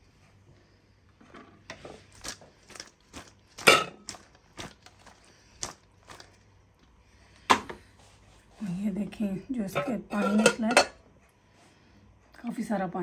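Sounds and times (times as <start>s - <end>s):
metal colander clanking on crockery: 3.6s - 4.1s, 9.7s - 11.0s.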